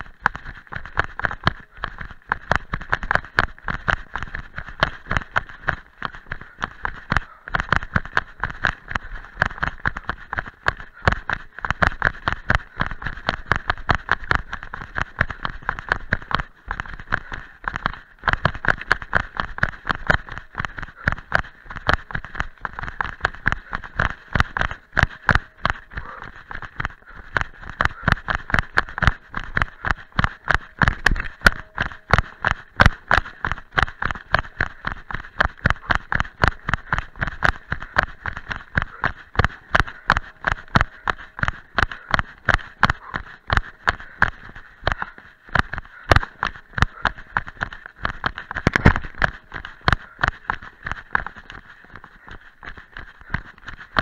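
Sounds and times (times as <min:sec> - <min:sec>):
running footsteps on dry leaves: 0:00.0 - 0:54.0.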